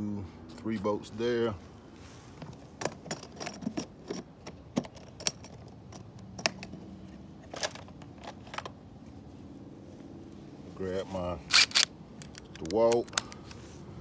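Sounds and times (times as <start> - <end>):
metal wrenches clinking: 2.8 - 6.8.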